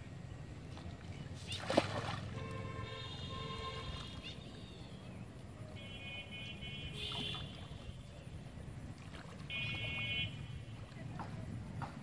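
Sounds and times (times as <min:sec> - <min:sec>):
water moving around person wading: 0:00.6 - 0:02.8, 0:07.0 - 0:12.0.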